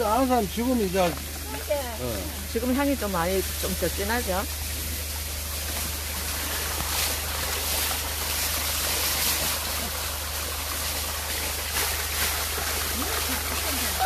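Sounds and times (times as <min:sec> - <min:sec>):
water pouring into a basin: 0:00.0 - 0:14.0.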